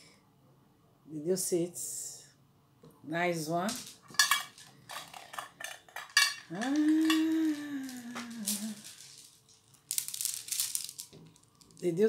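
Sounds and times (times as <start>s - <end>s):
beads and jewelry clicking: 6.0s - 11.9s.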